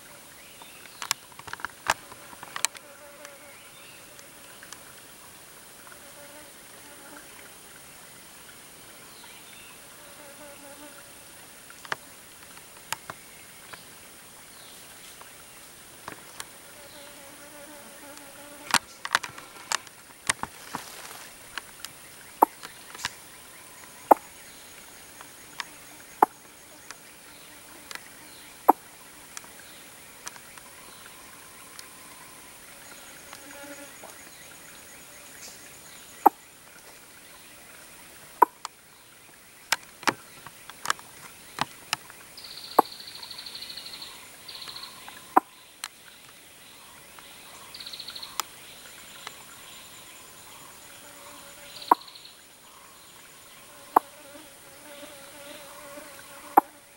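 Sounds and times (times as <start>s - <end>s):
insects buzzing high-pitched: 9.2s - 56.9s.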